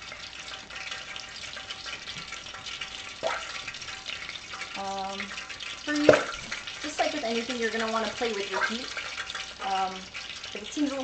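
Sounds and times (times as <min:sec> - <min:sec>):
food deep-frying in oil: 0:00.0 - 0:11.0.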